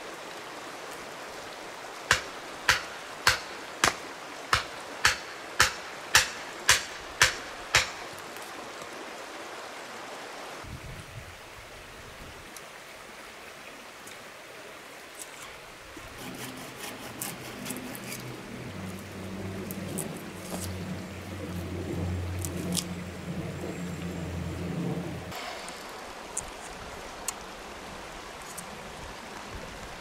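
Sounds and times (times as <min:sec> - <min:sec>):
river water rushing: 0:00.0 - 0:10.7, 0:11.3 - 0:30.0
hatchet pounding wooden stake: 0:02.1 - 0:08.0.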